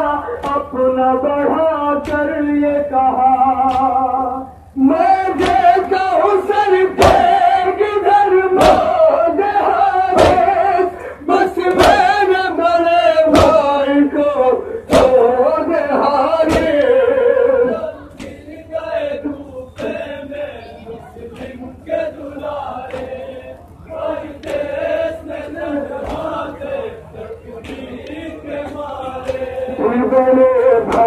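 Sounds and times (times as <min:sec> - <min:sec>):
men chanting a lament: 0:00.0 - 0:31.0
chest-beating slaps: 0:03.6 - 0:04.0, 0:05.4 - 0:05.7, 0:07.0 - 0:07.3, 0:08.6 - 0:09.0, 0:10.2 - 0:10.5, 0:11.7 - 0:12.1, 0:13.3 - 0:13.7, 0:14.9 - 0:15.2, 0:16.5 - 0:17.0, 0:19.8 - 0:20.0, 0:22.8 - 0:23.2, 0:26.0 - 0:26.4, 0:27.6 - 0:29.6.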